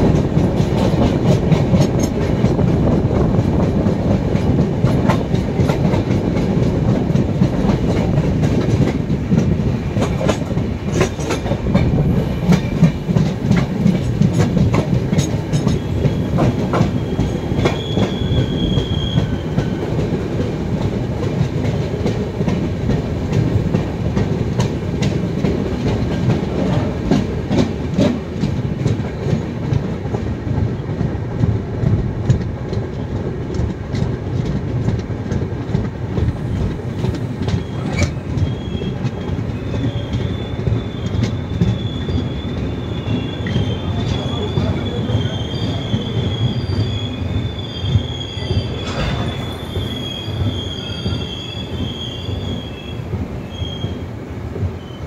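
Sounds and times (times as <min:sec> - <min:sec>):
train rumbling: 0:00.0 - 0:55.0
high wheel squeal: 0:16.9 - 0:19.5, 0:36.5 - 0:54.0.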